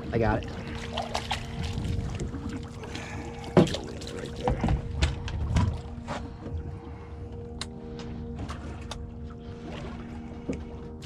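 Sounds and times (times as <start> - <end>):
water splashing: 0.0 - 6.4
steady low hum: 0.0 - 11.0.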